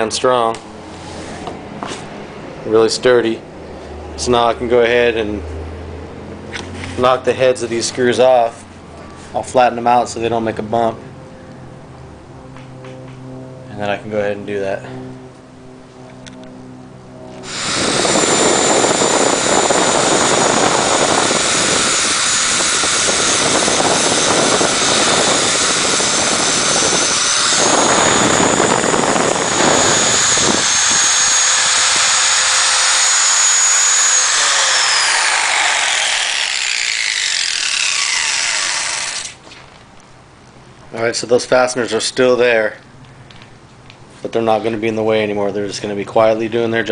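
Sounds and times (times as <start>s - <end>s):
angle grinder grinding screws: 17.4s - 39.4s.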